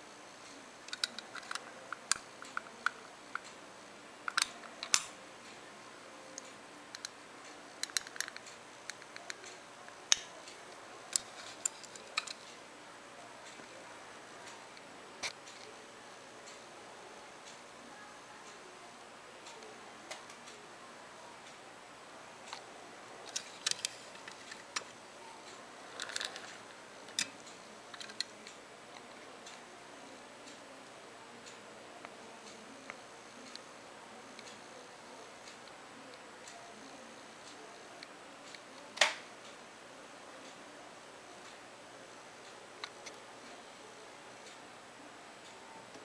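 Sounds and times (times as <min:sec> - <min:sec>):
toy cars clicking on tabletop: 0:26.0 - 0:26.5.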